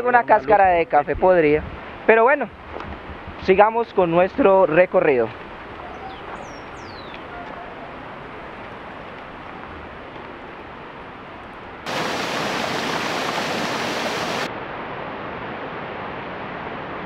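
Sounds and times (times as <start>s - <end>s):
rocky stream rushing: 7.8s - 14.5s.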